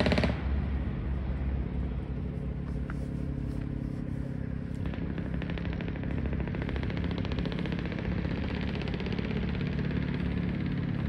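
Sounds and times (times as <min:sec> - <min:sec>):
vehicle engine rumbling: 0:00.0 - 0:11.0.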